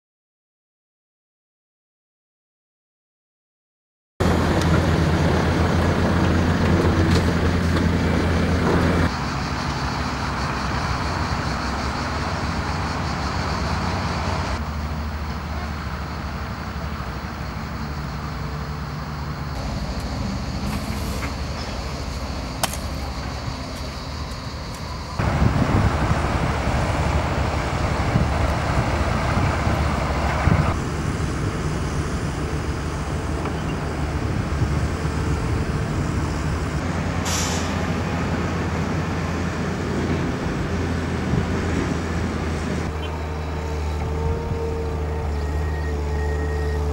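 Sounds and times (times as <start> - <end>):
diesel engine running: 4.2 - 46.9
brief hiss: 37.2 - 37.8.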